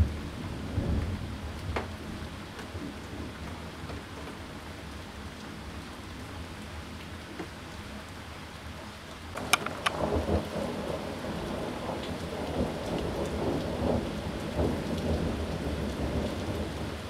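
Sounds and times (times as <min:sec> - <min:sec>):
thunder cracking and rumbling: 0:00.0 - 0:02.3, 0:09.4 - 0:17.0
steady rain: 0:00.0 - 0:17.0.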